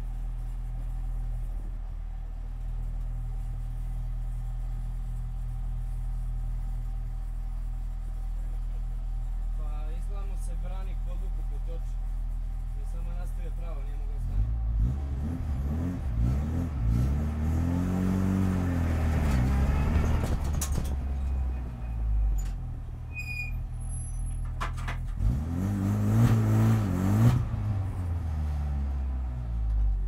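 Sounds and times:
race car engine revving: 14.1 - 20.6, 25.1 - 29.2.

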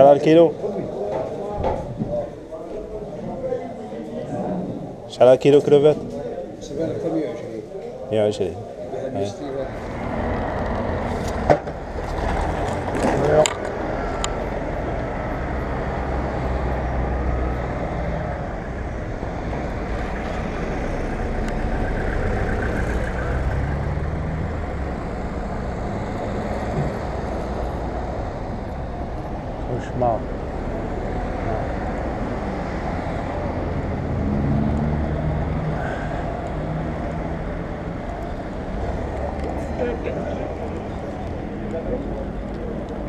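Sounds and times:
traffic rumble on wet road: 8.3 - 43.0
car engine: 9.3 - 43.0.

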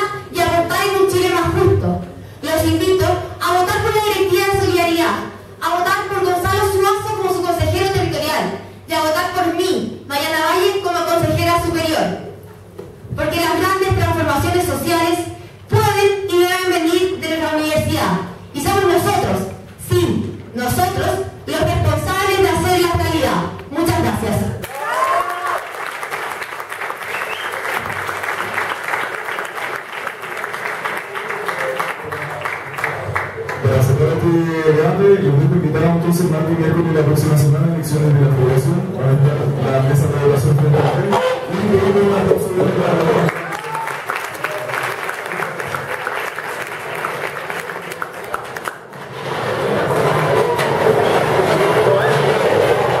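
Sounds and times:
crowd chatter in a hall: 0.0 - 8.9, 25.3 - 53.0
audience applauding: 24.6 - 33.8, 43.0 - 53.0.

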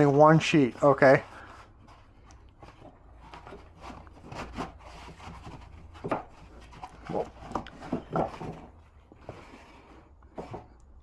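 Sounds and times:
paper rustling: 0.0 - 10.7.

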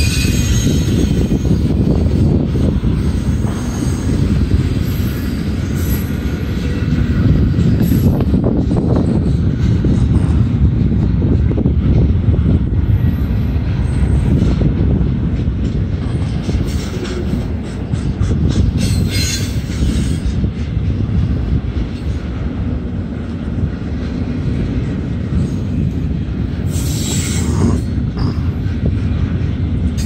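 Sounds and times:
high-pitched wheel squeals: 0.0 - 1.7
freight train wheels rumbling: 0.0 - 30.0.

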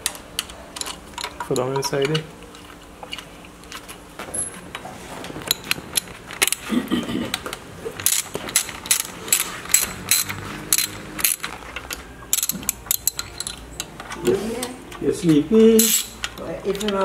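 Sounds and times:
hand ratchet clicking: 8.0 - 14.2, 14.9 - 17.0.

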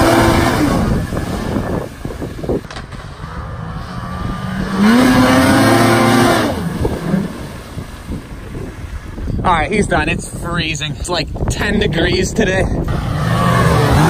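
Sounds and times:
snowmobile engine at high revs: 0.0 - 9.1, 12.8 - 14.0.

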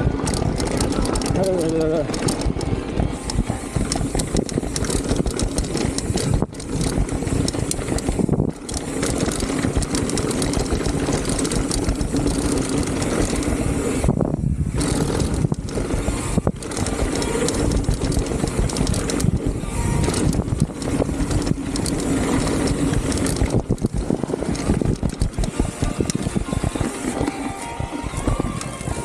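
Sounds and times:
bike rattling and knocking: 0.0 - 29.0
rush of riding noise: 0.0 - 29.0.

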